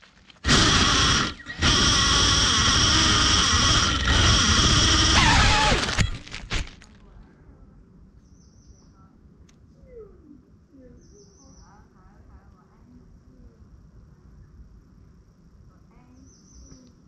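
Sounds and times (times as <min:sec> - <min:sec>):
drone tipping onto leaves: 0:00.0 - 0:07.0
drone motors whining: 0:00.4 - 0:06.8.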